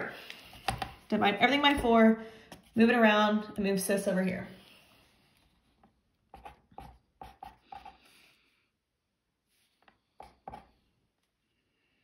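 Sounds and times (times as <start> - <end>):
pen scratching on paper: 6.3 - 8.0.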